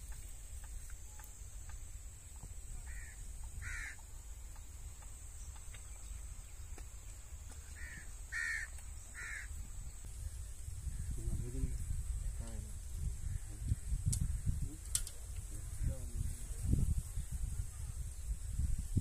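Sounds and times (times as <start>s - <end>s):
crow cawing: 2.8s - 4.0s, 7.7s - 9.6s.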